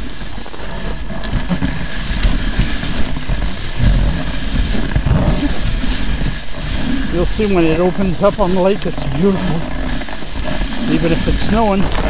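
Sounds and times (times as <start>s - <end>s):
snow scooter engine rumble: 0.0s - 12.0s
wind buffeting microphone: 0.0s - 12.0s
knocks from bumps: 3.8s - 5.6s.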